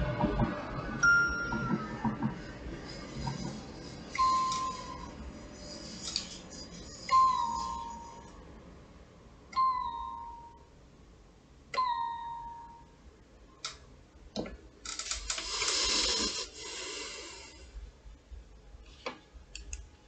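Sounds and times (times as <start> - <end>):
bell-like electronic strikes: 0.8 - 2.3
hissing noise: 15.3 - 17.7.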